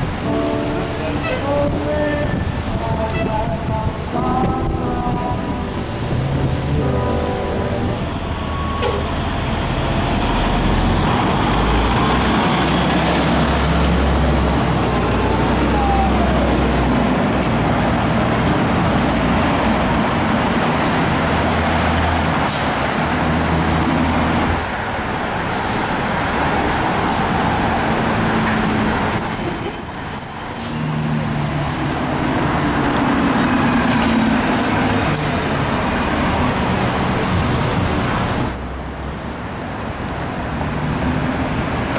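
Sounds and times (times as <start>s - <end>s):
bus engine droning: 0.0s - 41.9s
street traffic: 0.0s - 41.9s
brief high squeal: 8.0s - 9.3s, 28.6s - 32.9s.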